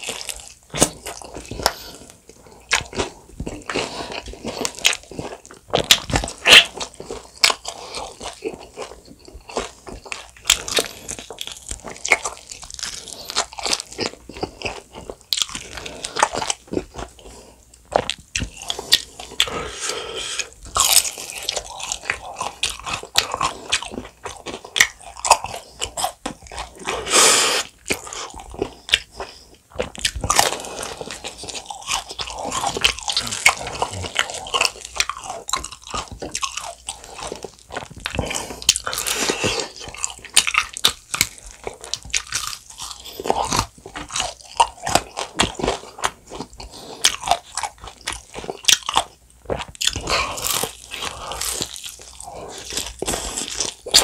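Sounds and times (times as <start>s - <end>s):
crunching fried chicken: 0.0s - 19.6s, 20.7s - 54.0s.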